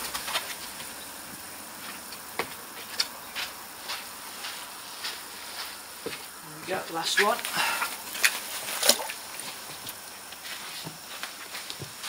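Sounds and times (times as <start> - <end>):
pond water hissing: 0.0 - 12.0
light water splashes: 7.2 - 11.8.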